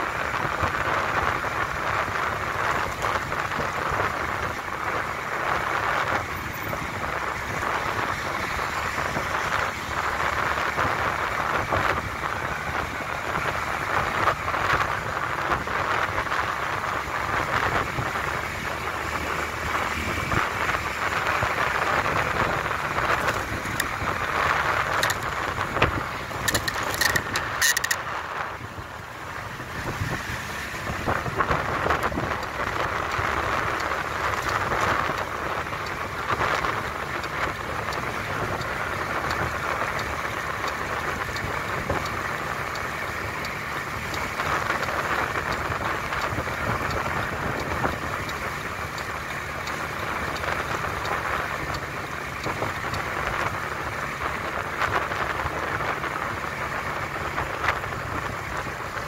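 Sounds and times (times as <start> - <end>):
road noise: 0.0 - 59.0
wind rushing over microphone: 0.0 - 59.0
short clicks or rattles: 24.9 - 28.1.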